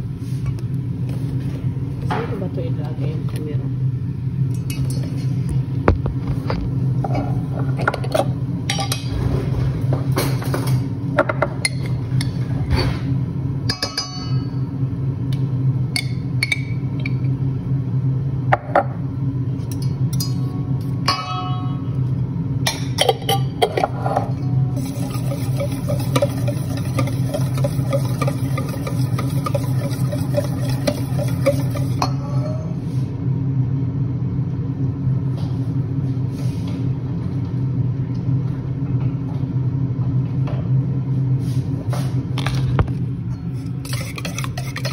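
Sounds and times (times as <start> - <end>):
steady low hum: 0.0 - 44.9
utensils and cookware clinking: 7.8 - 9.2, 22.7 - 32.6, 43.4 - 44.9.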